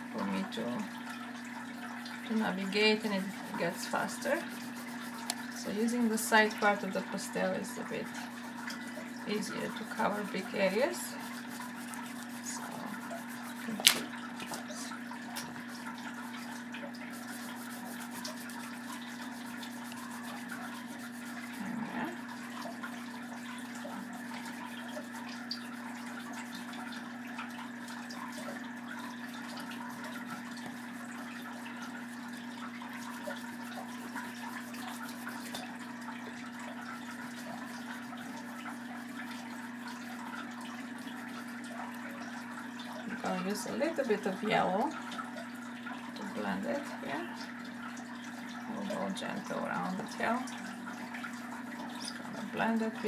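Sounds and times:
pastel scratching on paper: 2.9 - 6.8.

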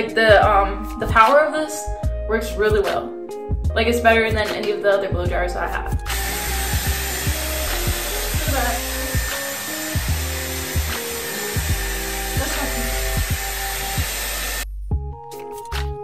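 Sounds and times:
background music with beat: 0.0 - 16.0
hot-air styler blowing: 6.1 - 14.6.

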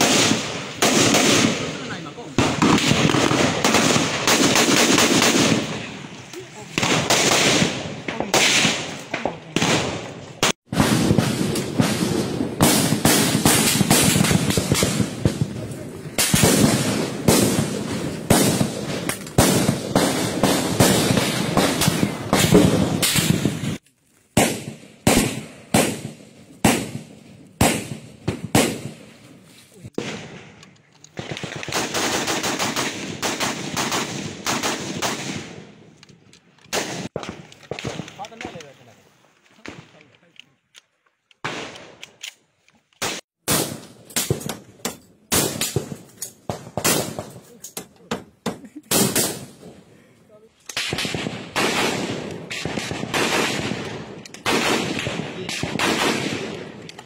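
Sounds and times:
rapid rifle fire bursts: 0.0 - 5.9, 6.7 - 23.8, 24.4 - 29.0, 31.2 - 35.6, 50.8 - 56.8
gunshot with long echo: 0.0 - 6.0, 6.7 - 23.8, 24.4 - 29.1, 43.0 - 44.7, 50.8 - 57.0
clatter of sharp gunfire cracks: 16.2 - 23.6, 30.0 - 38.7, 39.6 - 49.6, 50.6 - 57.0.

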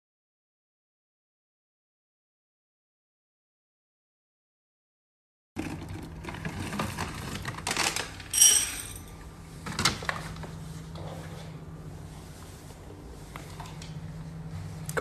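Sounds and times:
dry kibble rattling into bowl: 7.6 - 9.1
bright ringing clink: 8.4 - 9.1.

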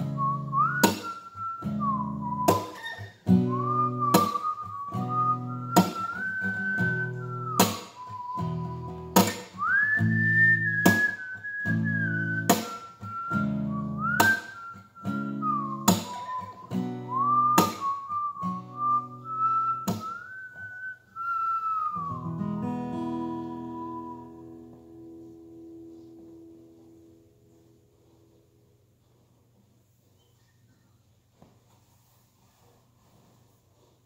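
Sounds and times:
strummed acoustic guitar: 0.0 - 20.8, 21.4 - 28.6
person whistling a melody: 0.0 - 26.2.

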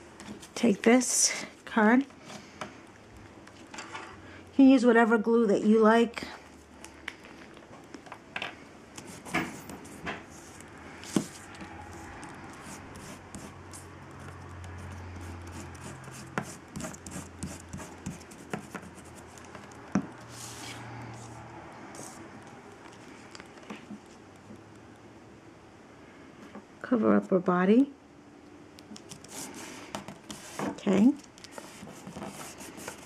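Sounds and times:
glue stick rubbing on paper: 9.0 - 20.8, 29.0 - 30.6, 31.3 - 33.0.

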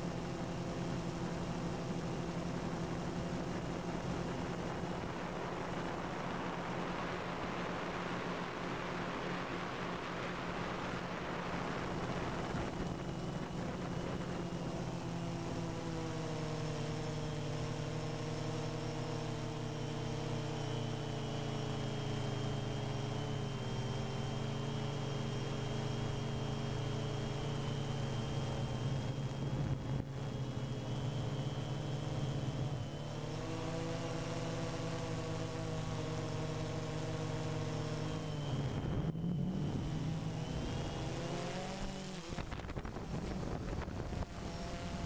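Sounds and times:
drone motors humming: 0.0 - 45.0
rush of wind and prop wash: 3.3 - 14.6, 38.7 - 45.0.

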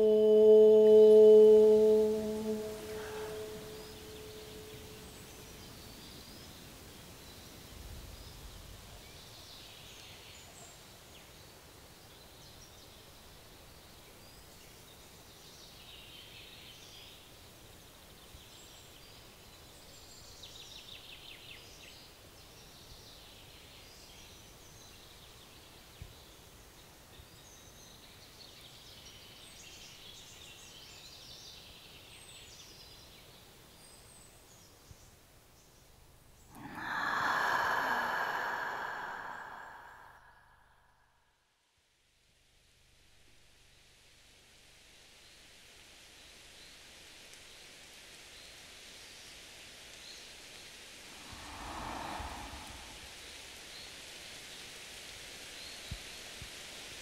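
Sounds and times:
steady low hiss: 0.0 - 9.0, 45.2 - 57.0.

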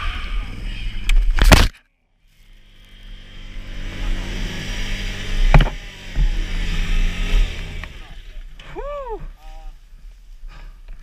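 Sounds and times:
sharp knock: 5.5 - 6.3.

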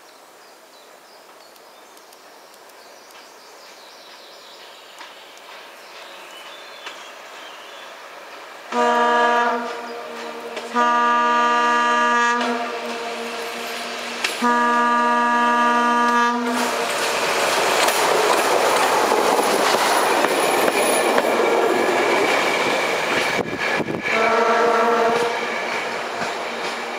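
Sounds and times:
railbus engine and wheel noise: 0.2 - 26.9
train horn blasts: 8.7 - 17.1, 24.0 - 25.5.

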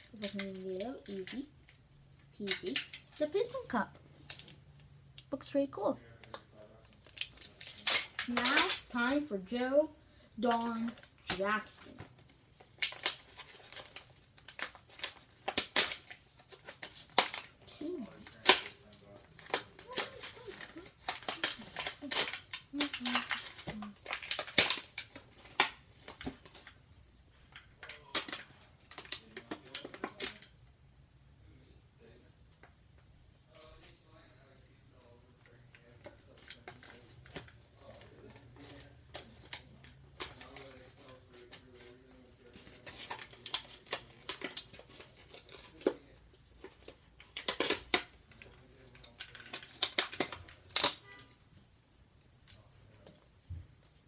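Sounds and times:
plastic packaging crinkling: 6.0 - 9.5, 10.4 - 26.8, 35.0 - 51.4.

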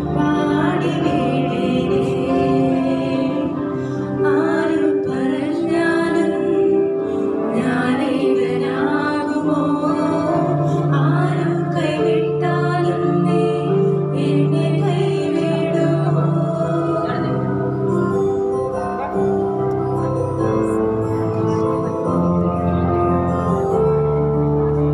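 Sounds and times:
woman singing into microphone: 0.0 - 18.0
electronic keyboard sustained notes: 0.0 - 24.9.

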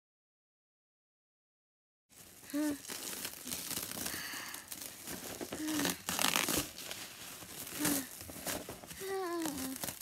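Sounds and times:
plastic wrap crinkling and tearing: 2.1 - 10.0.

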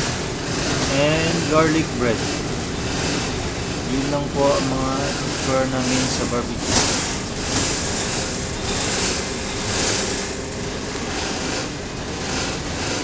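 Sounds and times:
low machinery drone: 0.0 - 13.0.

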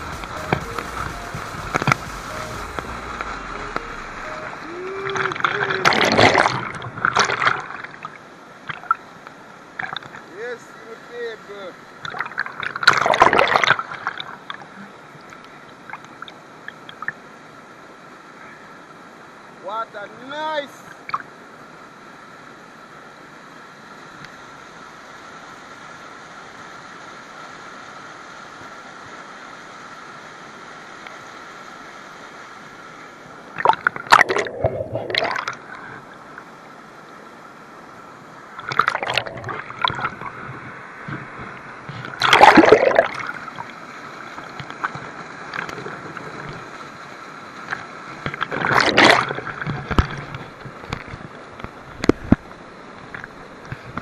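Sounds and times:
steady background hiss: 0.0 - 54.0
water sloshing and splashing: 2.6 - 9.1, 11.9 - 17.2, 33.5 - 36.4, 38.5 - 54.0.

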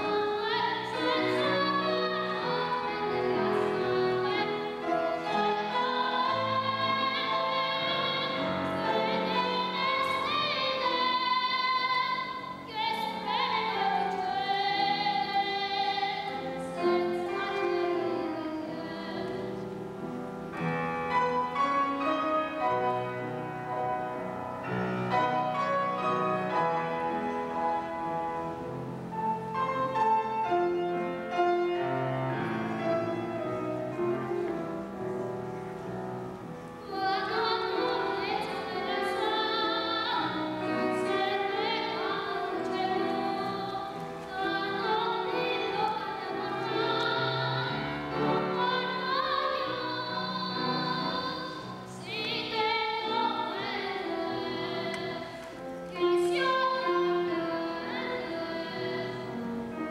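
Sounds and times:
boy singing: 36.8 - 59.2.

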